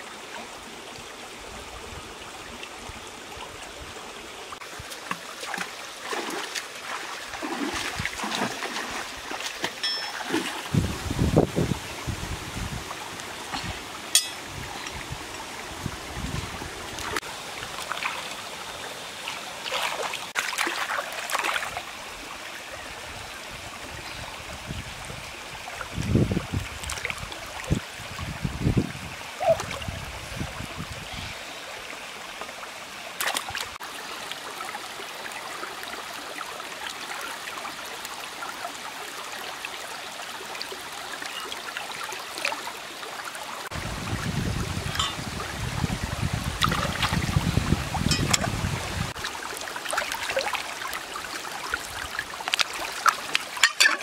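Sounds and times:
stream running over rocks: 0.0 - 54.0
splashes in water: 4.8 - 10.8, 19.3 - 21.8, 46.6 - 47.4.

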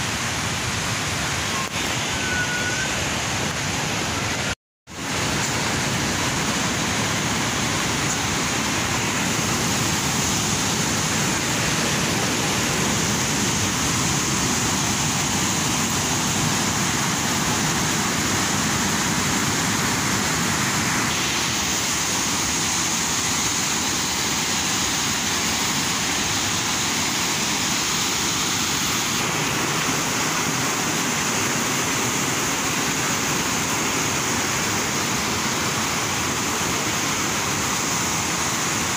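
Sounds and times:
river rapids rushing over rocks: 5.1 - 38.9.

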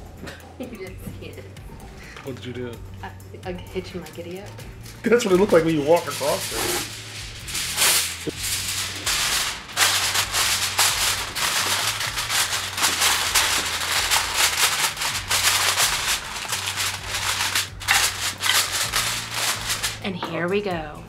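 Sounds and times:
aluminium foil crinkling: 5.2 - 20.1.

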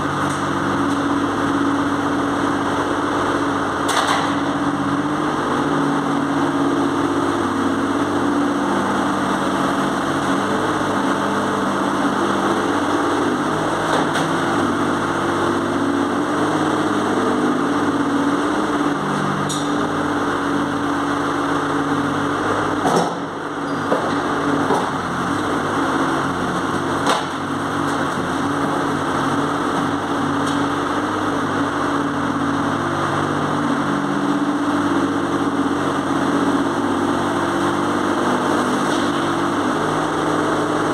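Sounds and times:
diesel engine running: 0.0 - 40.9.

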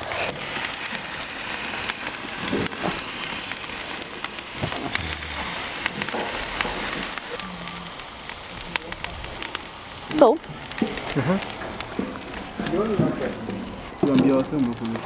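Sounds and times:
chicken sizzling on grill: 0.0 - 15.0.

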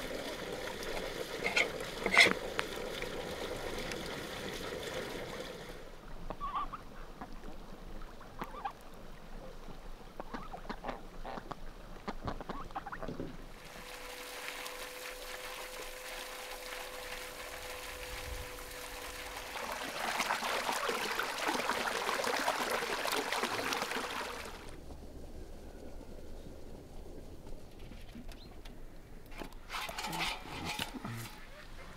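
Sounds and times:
running water splashing over fish: 0.0 - 5.8, 13.5 - 24.8.

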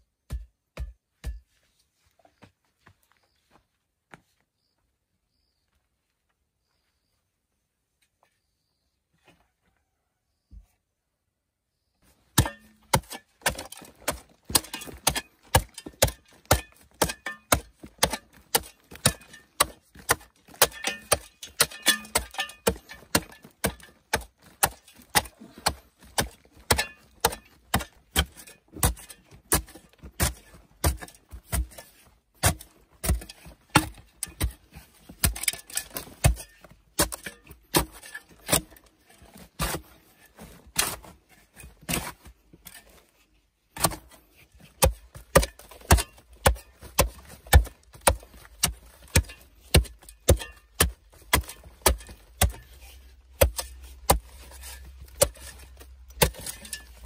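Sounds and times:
hand tool striking: 0.3 - 1.5, 12.4 - 38.9, 44.7 - 57.0.

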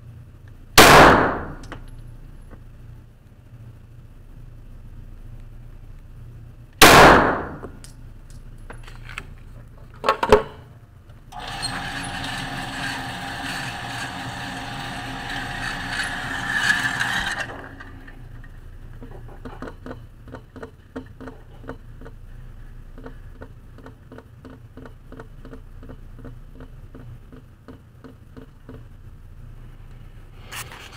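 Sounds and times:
pistol shots echoing indoors: 0.8 - 1.7, 6.8 - 7.6
target carrier motor running: 11.1 - 30.2.

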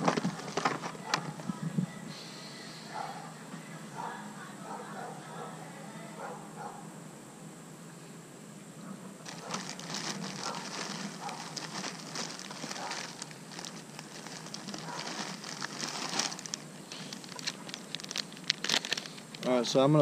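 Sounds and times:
plastic package crinkling: 0.0 - 1.5, 9.2 - 19.5.

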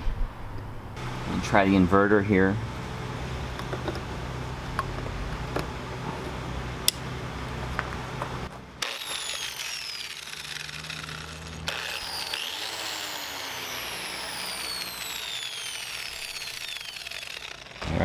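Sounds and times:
low steady hum: 0.0 - 18.0
angle grinder whining: 8.8 - 18.0.

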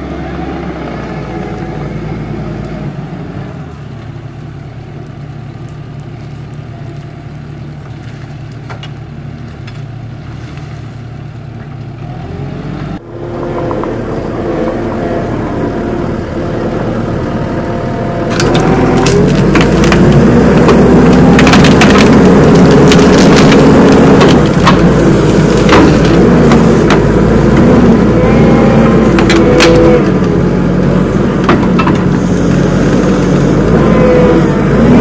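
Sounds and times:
diesel engine under load: 0.0 - 35.0
brush cracking: 18.3 - 28.0.

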